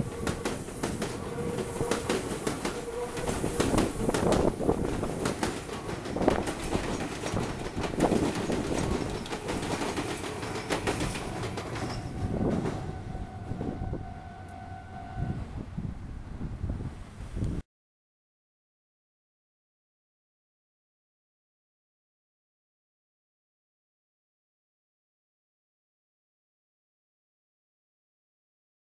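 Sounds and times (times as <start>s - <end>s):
train wheels clattering over rail joints: 0.0s - 13.0s
steady high tone: 8.9s - 16.2s.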